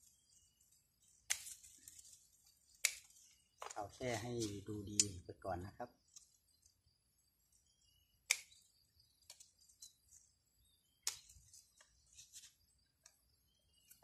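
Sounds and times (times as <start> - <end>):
scissors snipping twigs: 1.2 - 2.1, 2.7 - 3.8, 4.4 - 5.2, 8.2 - 10.2, 11.0 - 11.9.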